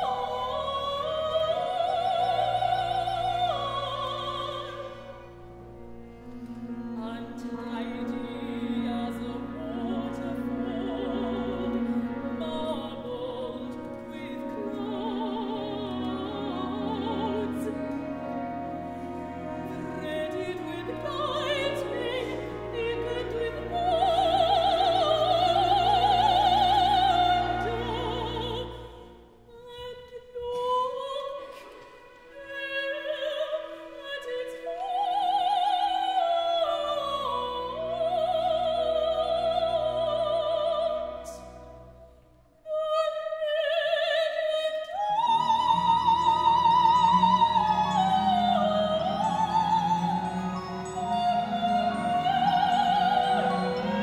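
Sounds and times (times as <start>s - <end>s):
woman singing operatic solo: 0.0s - 5.4s, 6.9s - 41.5s, 42.6s - 54.0s
orchestra sustained low notes: 0.0s - 30.6s.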